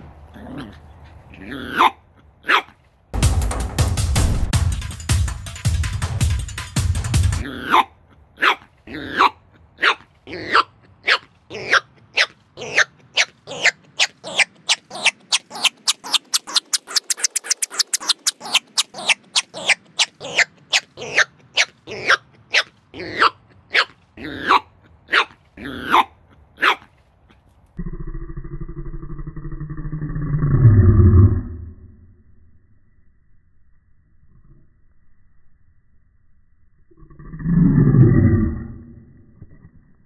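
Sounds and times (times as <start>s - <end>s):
puppy barking high and quick: 1.7s - 2.8s, 7.6s - 26.9s.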